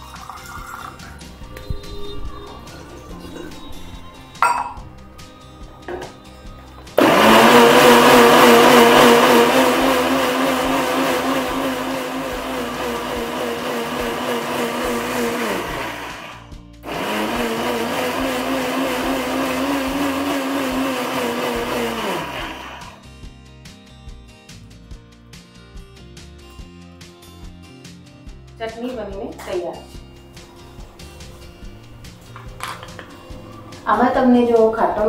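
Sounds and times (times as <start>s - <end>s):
mixer grinder running: 6.8s - 23.0s.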